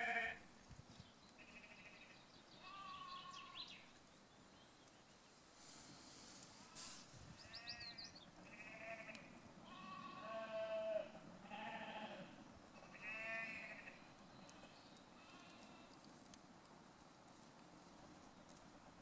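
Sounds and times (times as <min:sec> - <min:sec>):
goats bleating: 0:08.4 - 0:15.9.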